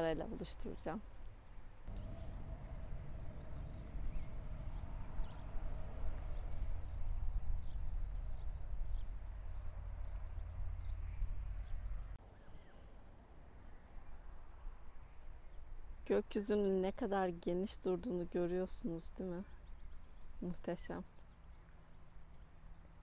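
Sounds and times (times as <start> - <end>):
wind rumbling on microphone: 1.8 - 12.2
small birds chirping: 1.9 - 12.9, 17.8 - 23.0.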